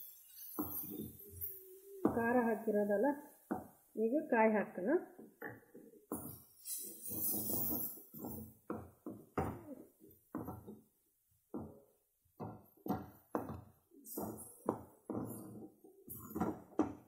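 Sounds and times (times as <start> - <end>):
wooden spatula scraping pan: 6.1 - 8.6.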